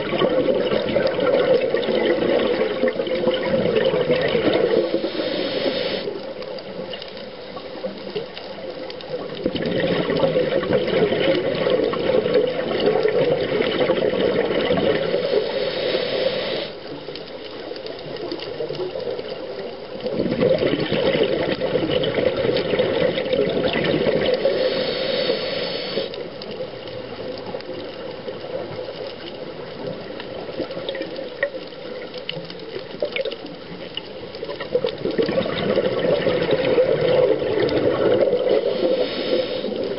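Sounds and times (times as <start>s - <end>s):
underwater scuba breathing: 0.1s - 8.0s, 9.7s - 17.3s, 20.2s - 26.9s, 35.5s - 39.9s.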